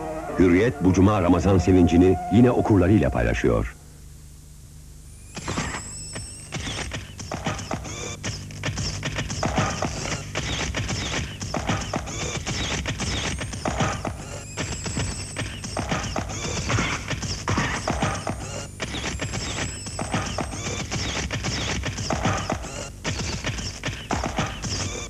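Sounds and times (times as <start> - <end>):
clopping percussion beat: 6.9 - 25.0.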